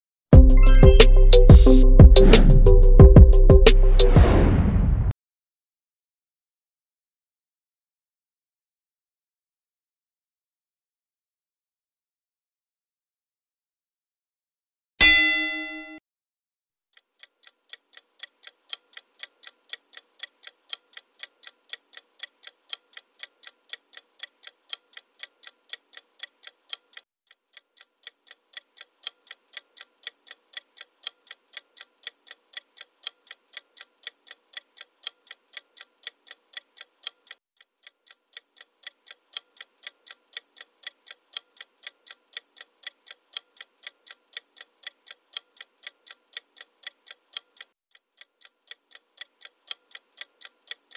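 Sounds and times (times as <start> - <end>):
clock ticking: 17.0 - 50.9.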